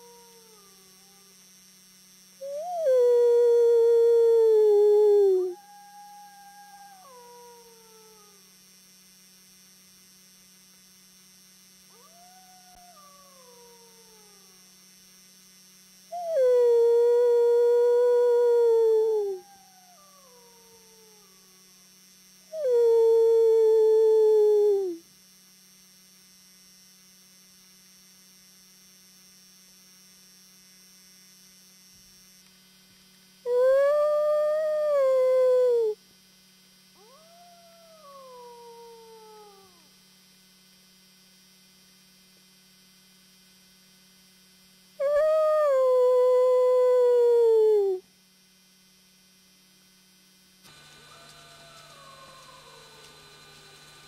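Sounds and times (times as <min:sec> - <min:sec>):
faint electrical hum: 0:00.0 - 0:54.0
wolf howling: 0:02.4 - 0:08.4, 0:16.2 - 0:21.7, 0:22.5 - 0:25.0, 0:33.5 - 0:36.0, 0:37.0 - 0:39.9, 0:45.0 - 0:48.0, 0:50.8 - 0:53.8
steady low hum: 0:44.5 - 0:54.0.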